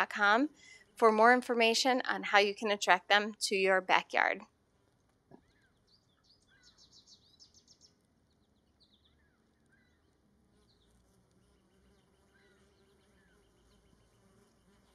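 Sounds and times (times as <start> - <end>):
faint high bird chirps: 5.4 - 11.0
bee buzzing: 10.4 - 14.9.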